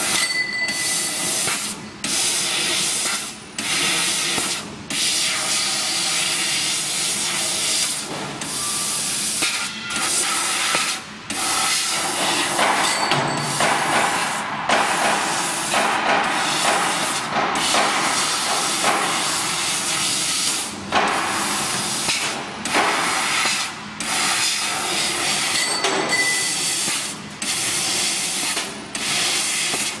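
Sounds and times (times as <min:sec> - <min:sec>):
laser cutting head hissing: 0:00.9 - 0:12.5.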